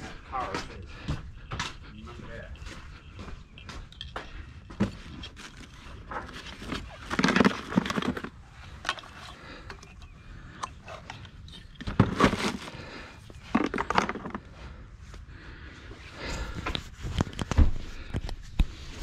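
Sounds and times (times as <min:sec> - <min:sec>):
handling clicks knocks and rustles: 0:03.6 - 0:12.7, 0:13.4 - 0:14.5.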